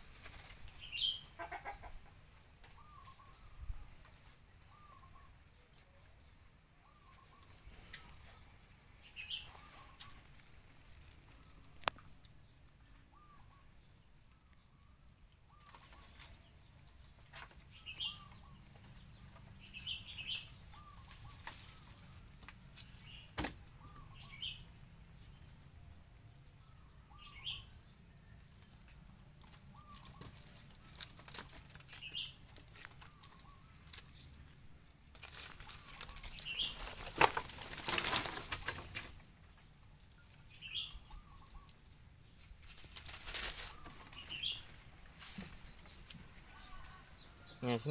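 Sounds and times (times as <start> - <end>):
small birds chirping: 0.0 - 47.9
rustling: 28.6 - 39.3, 42.4 - 47.2.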